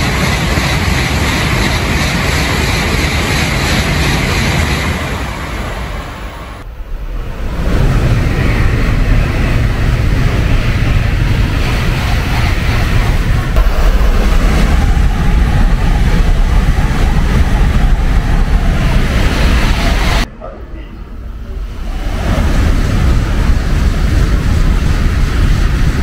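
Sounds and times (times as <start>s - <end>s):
train wheels rumbling on rail: 0.0s - 20.3s, 21.3s - 26.0s.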